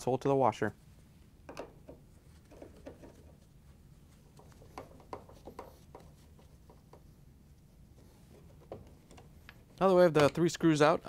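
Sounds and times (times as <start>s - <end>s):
gloved hand rustling: 2.0s - 9.7s.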